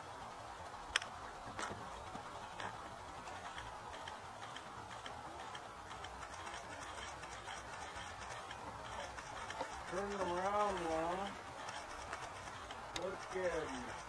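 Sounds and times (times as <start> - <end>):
low background noise: 0.0 - 14.0
camera shutters clicking: 3.4 - 14.0.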